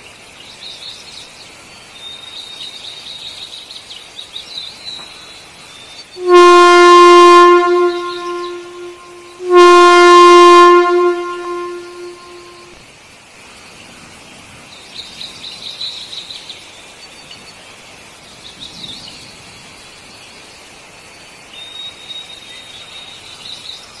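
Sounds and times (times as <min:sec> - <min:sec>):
thin whistle-like note: 0:06.2 - 0:12.7.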